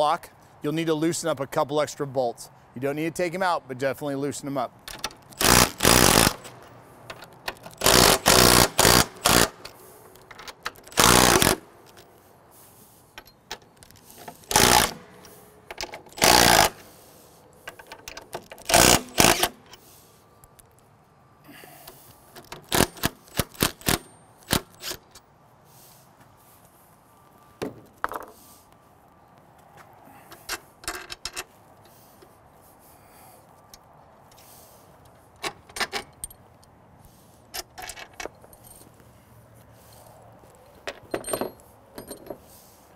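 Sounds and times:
impact driver hammering: 0:07.8 - 0:09.6, 0:14.5 - 0:15.2, 0:16.2 - 0:16.8
metallic clicks and clinks: 0:37.5 - 0:39.0, 0:39.9 - 0:42.4.

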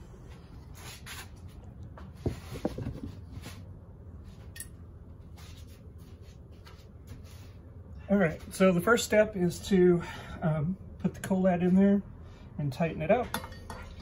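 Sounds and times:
phone handling rubbing and scraping: 0:02.2 - 0:03.6.

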